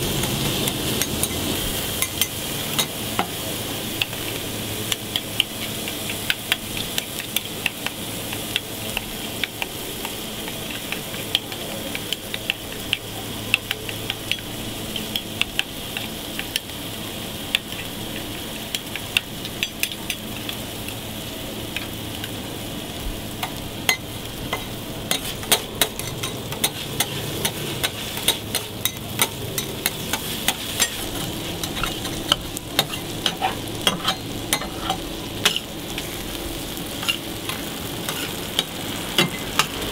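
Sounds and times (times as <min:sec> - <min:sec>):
burger patties sizzling on griddle: 0:00.0 - 0:39.9.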